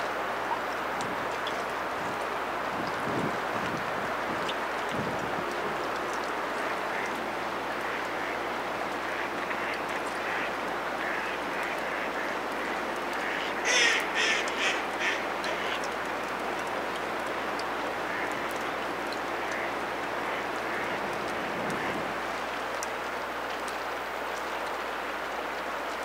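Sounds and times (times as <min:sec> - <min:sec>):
steady hiss: 0:00.0 - 0:25.9
ducks quacking: 0:06.6 - 0:15.9, 0:17.9 - 0:22.2.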